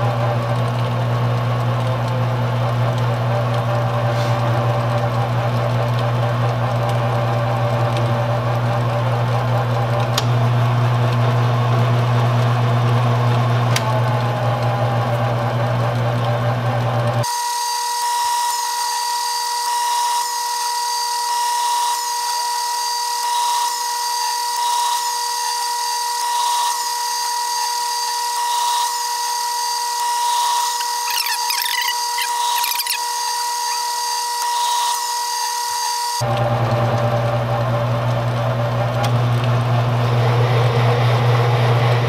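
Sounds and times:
high cutting whine: 30.1s - 36.2s.

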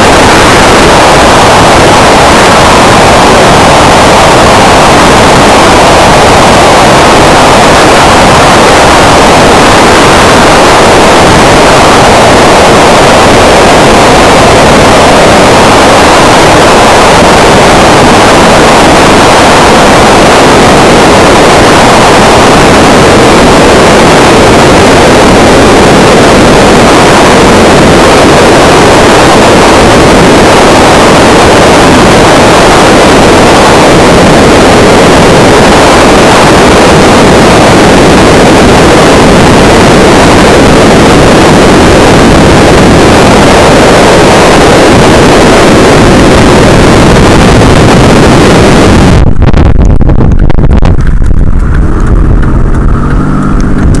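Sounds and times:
distorted wind on microphone: 0.0s - 54.0s
muffled car cabin rumble: 48.8s - 54.0s.

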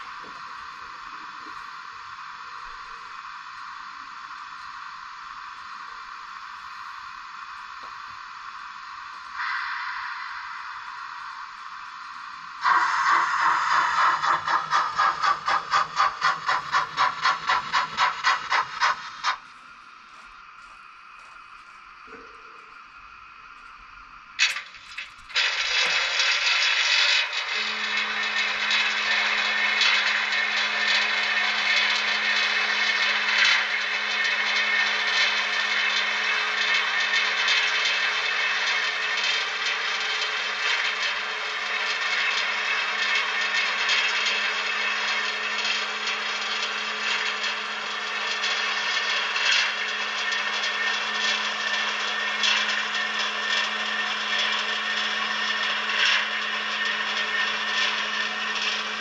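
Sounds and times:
steam hiss: 4.2s - 19.6s
steam locomotive chuffing: 9.3s - 19.6s, 24.4s - 59.0s.

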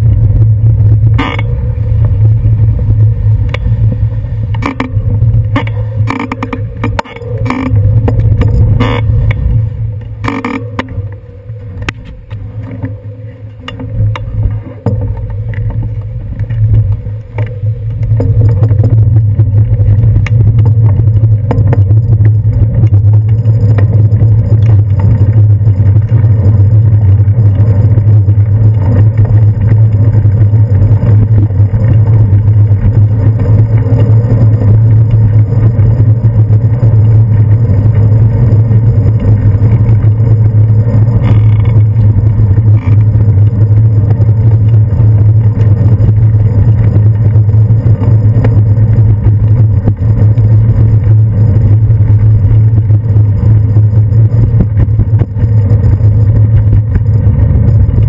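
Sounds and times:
city traffic: 0.0s - 54.4s
wind and road noise: 0.0s - 58.0s.

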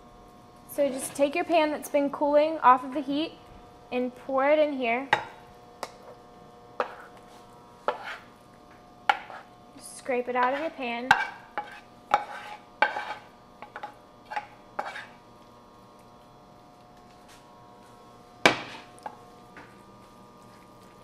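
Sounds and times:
wooden spatula scraping a pan: 6.8s - 8.4s, 9.1s - 9.5s, 10.4s - 15.2s.

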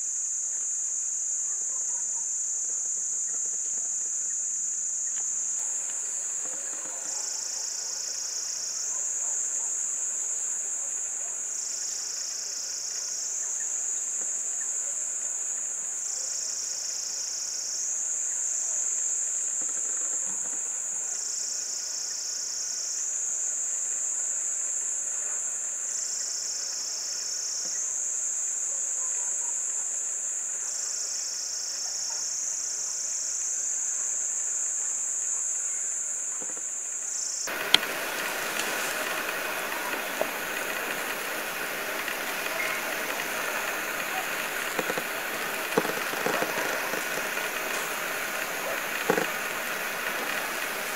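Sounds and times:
even hiss: 2.4s - 28.6s, 36.6s - 50.9s
shrill insect drone: 4.9s - 24.6s, 37.4s - 50.9s.

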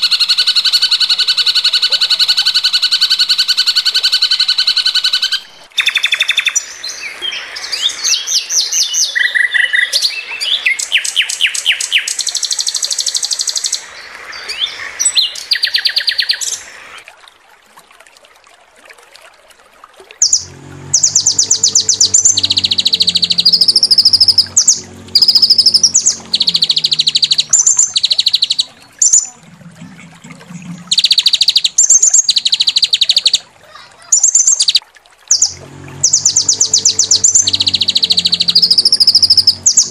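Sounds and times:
low droning: 20.2s - 32.8s, 35.3s - 39.9s
songbirds chattering trills: 20.2s - 33.4s.

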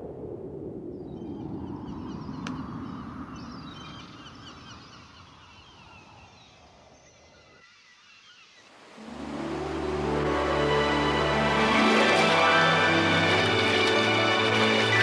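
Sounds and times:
flock of birds chirping: 1.0s - 8.9s, 11.6s - 15.0s.

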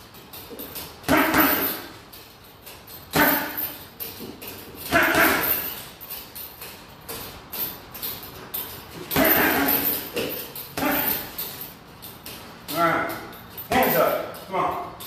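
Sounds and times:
punches thudding on punching bag: 1.0s - 1.9s, 3.1s - 5.8s, 9.0s - 11.3s
loud short vocal bursts: 10.8s - 11.3s.

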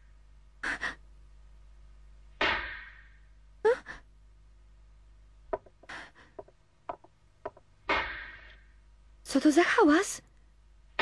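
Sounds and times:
girl sobbing: 3.6s - 4.1s
faint knocks: 5.5s - 7.7s.

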